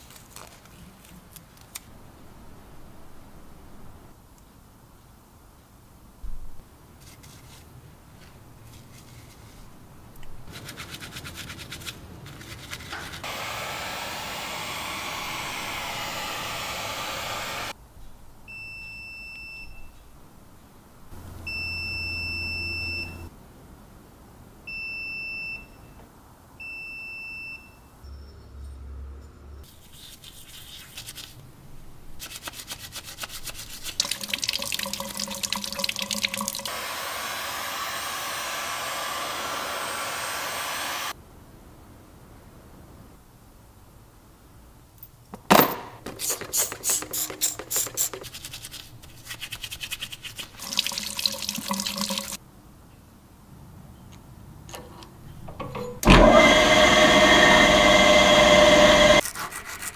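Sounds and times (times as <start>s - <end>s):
hands being washed: 32.3s - 36.7s, 46.2s - 52.4s
water running from a tap: 33.9s - 36.7s, 50.4s - 52.4s.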